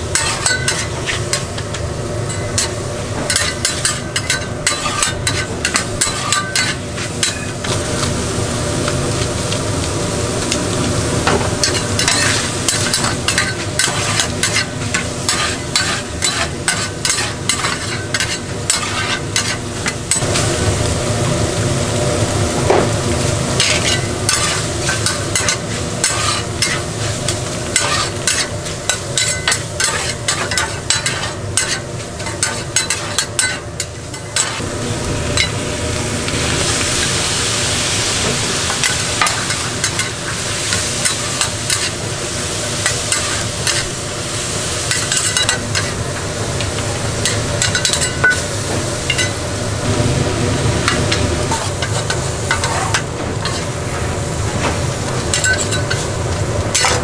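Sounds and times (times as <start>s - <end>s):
giblets sizzling in a pan: 0.0s - 57.0s
spatula scraping and clicking: 11.6s - 20.2s.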